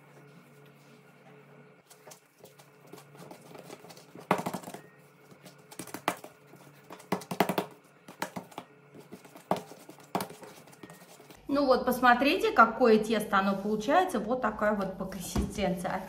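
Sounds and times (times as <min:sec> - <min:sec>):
hands kneading dough: 0:00.0 - 0:11.4.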